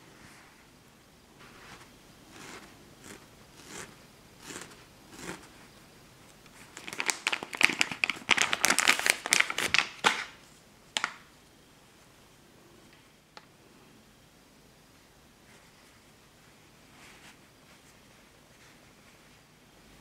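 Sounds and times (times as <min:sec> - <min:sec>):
wool fibres rustling: 0:01.4 - 0:11.3.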